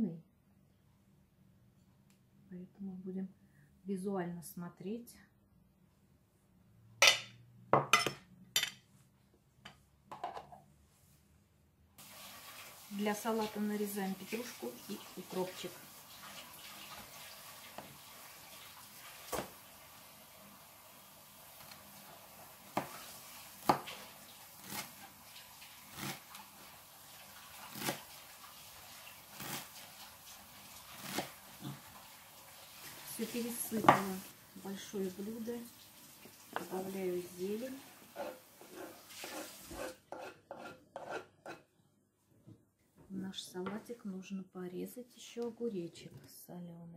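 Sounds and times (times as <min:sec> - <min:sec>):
metal spoon clinking on plate: 0:07.0 - 0:07.3
knife chopping on wooden board: 0:23.6 - 0:24.0
cheese scraped into bowl: 0:38.1 - 0:41.7.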